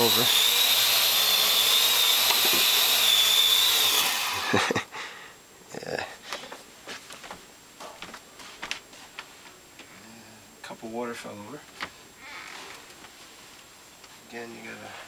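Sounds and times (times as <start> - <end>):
drone rotors whining: 0.0 - 4.6.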